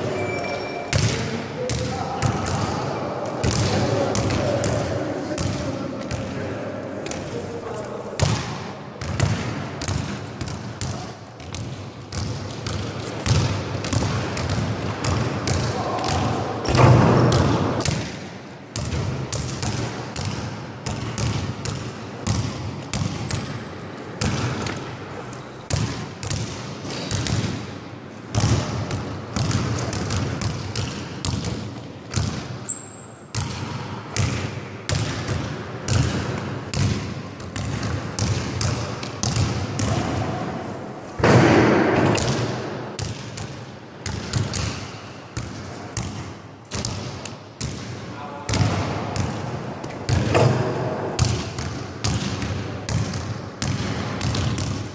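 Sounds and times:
short high squeak: 0.0s - 1.0s
basketball bouncing in hall: 0.0s - 54.9s.

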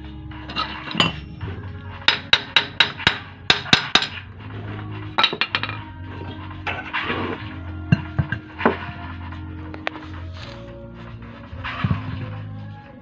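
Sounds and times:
hammer striking metal: 0.5s - 4.3s.

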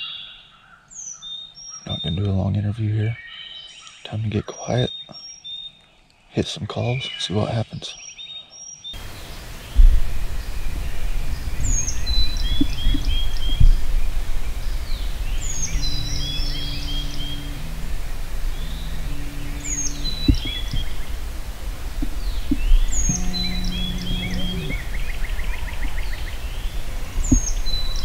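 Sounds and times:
songbird singing: 0.0s - 28.0s
steady low rumble: 9.0s - 28.0s.

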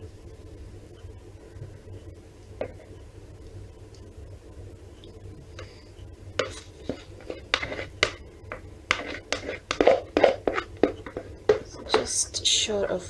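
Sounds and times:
spatula scraping plastic jug: 6.4s - 12.2s.

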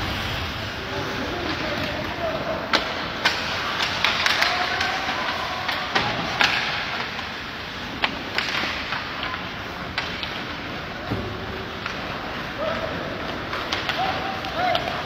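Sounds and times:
skates scraping on ice: 0.0s - 15.0s
sticks and puck clacking: 0.9s - 15.0s.

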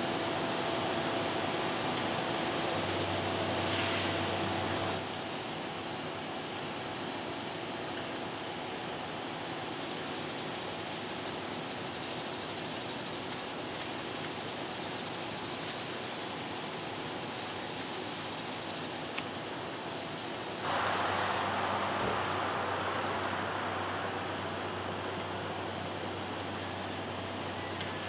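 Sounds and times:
hissy wash of noise: 19.0s - 28.0s
diesel engine drone: 19.4s - 28.0s
faint hum: 19.4s - 28.0s.

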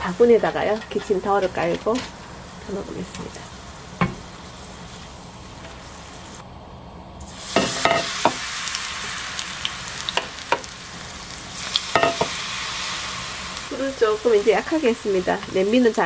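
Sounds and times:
deep-frying crackling hiss: 0.0s - 16.0s.

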